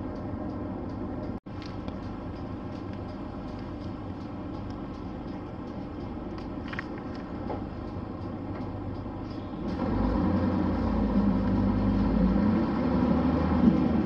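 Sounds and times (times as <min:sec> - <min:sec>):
bus diesel engine rumble: 0:00.0 - 0:14.0.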